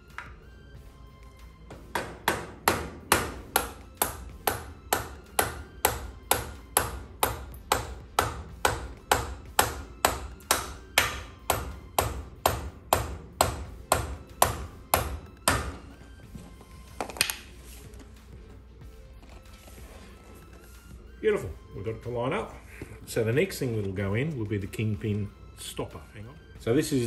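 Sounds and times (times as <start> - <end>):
hammer tapping metal: 1.8 - 15.8.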